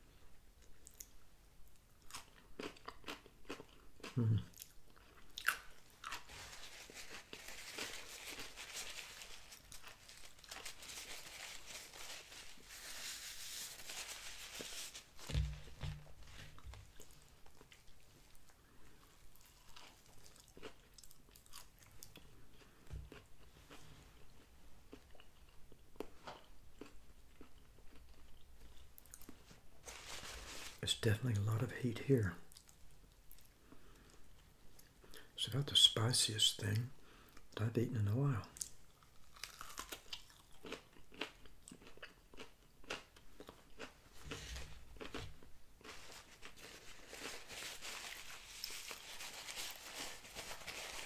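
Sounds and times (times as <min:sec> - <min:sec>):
person chewing crunchy food: 0:02.0 - 0:12.2, 0:15.4 - 0:29.5, 0:38.6 - 0:50.0.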